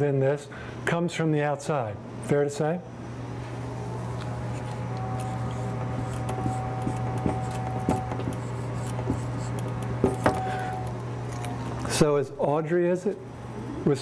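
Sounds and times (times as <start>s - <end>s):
low room hum: 0.0s - 14.0s
marker scratching on paper: 4.5s - 10.4s.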